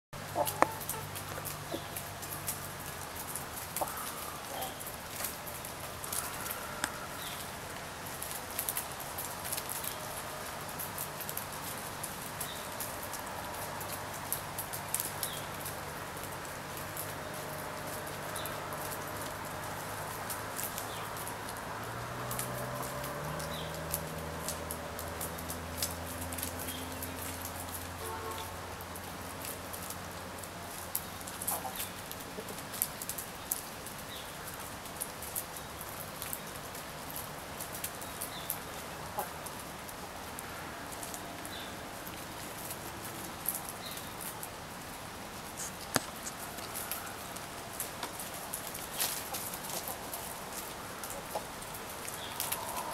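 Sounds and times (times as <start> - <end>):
hen clucking: 0.2 - 2.0, 3.8 - 4.9, 39.1 - 39.4
beaks tapping on ground: 0.2 - 44.6, 45.5 - 52.9
steady outdoor hiss: 0.2 - 52.9
chickens pecking clicks: 0.3 - 27.8, 29.4 - 39.7, 45.7 - 52.9.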